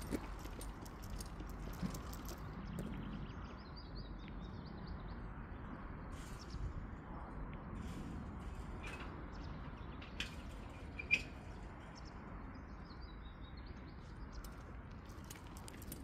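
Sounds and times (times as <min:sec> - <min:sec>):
small birds chirping: 0:08.8 - 0:16.0.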